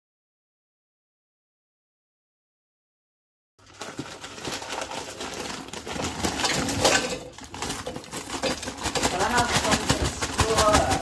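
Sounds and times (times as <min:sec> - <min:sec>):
chips clattering into plastic basket: 0:03.6 - 0:11.0
plastic bag crinkling: 0:03.6 - 0:11.0.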